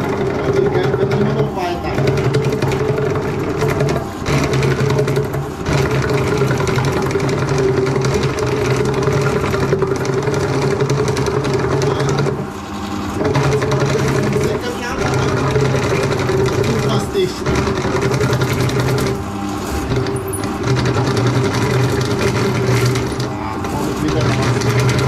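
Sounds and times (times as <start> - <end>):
drain cleaning machine motor humming: 0.0 - 25.0.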